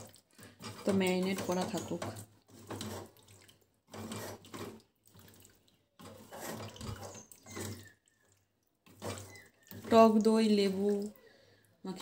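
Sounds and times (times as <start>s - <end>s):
wet squelching of marinade: 0.0s - 12.0s.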